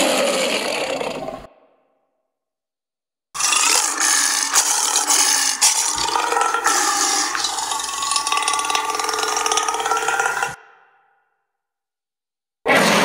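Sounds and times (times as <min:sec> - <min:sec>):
rasping monster growl-screech: 0:00.0 - 0:01.5, 0:03.4 - 0:11.1, 0:12.7 - 0:13.0.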